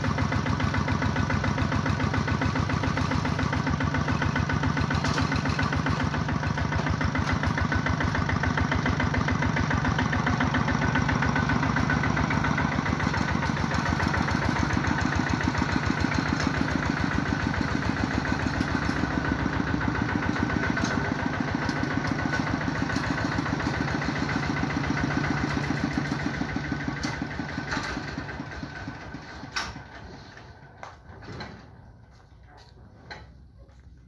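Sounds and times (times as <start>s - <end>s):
diesel engine idling: 0.0s - 34.0s.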